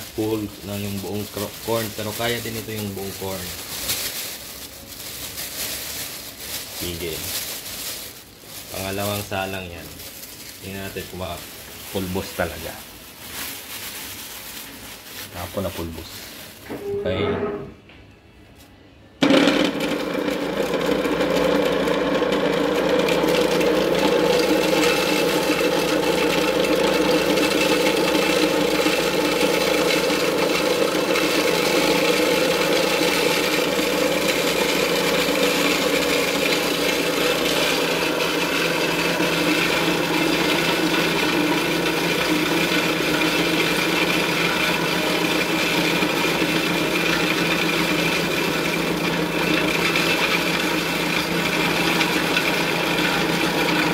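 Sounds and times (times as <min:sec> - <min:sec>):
electric grinder grinding corn: 0:00.0 - 0:07.6, 0:19.2 - 0:53.9.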